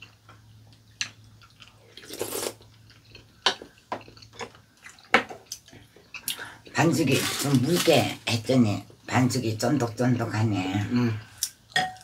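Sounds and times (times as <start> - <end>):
chewing: 0.0 - 6.4
person slurping soup: 2.0 - 2.6.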